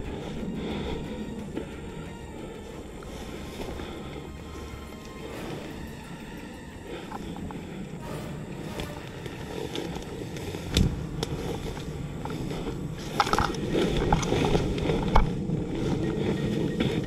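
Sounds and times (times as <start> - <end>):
stems and twigs snapping: 8.8 - 16.0.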